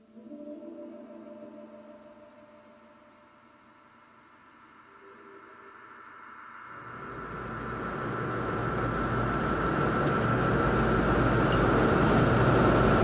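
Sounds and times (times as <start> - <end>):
thin high whine: 0.0 - 13.0
airliner cabin rushing hum: 6.8 - 13.0.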